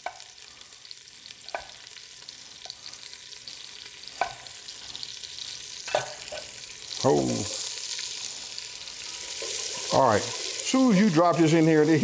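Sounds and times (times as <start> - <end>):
onion sizzling in fat: 0.0 - 12.0.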